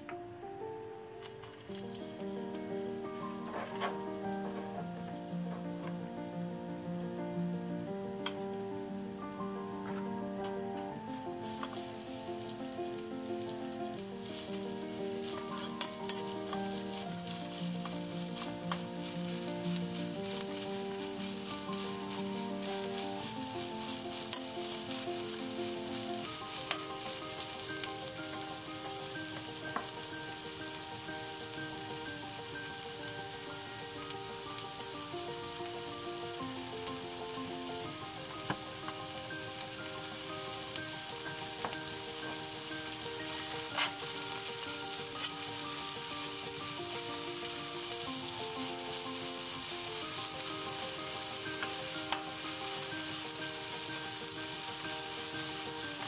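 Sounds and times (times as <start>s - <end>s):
soft background music: 0.0s - 56.0s
peppers sizzling in oil: 0.9s - 56.0s.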